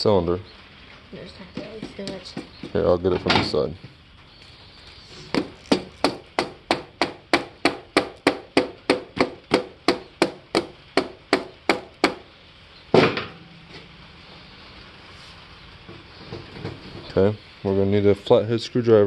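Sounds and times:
heavy thump: 0:12.9 - 0:13.8.

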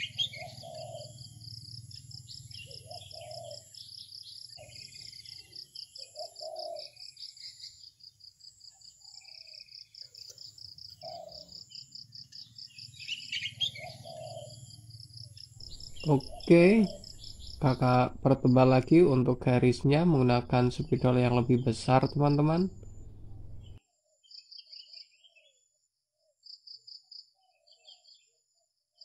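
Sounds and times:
small birds chirping: 0:00.0 - 0:25.6
insect trilling: 0:15.6 - 0:19.1
faint low hum: 0:15.6 - 0:23.8.

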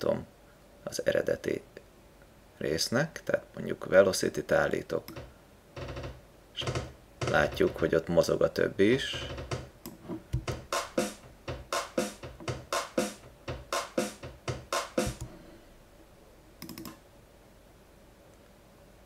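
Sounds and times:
short electronic notes: 0:10.4 - 0:15.3.

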